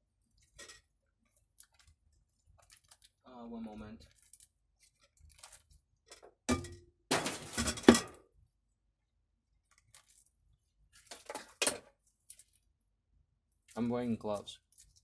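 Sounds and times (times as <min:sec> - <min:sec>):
metal kitchenware clinking: 0:06.1 - 0:08.2.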